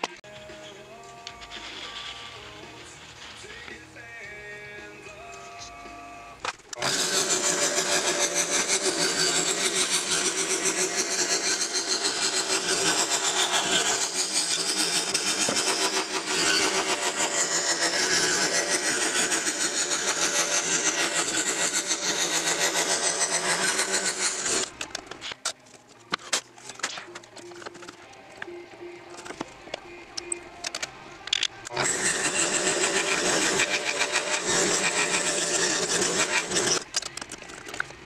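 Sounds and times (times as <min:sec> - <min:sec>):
scroll saw cutting wood: 0:06.8 - 0:25.0, 0:31.7 - 0:36.9.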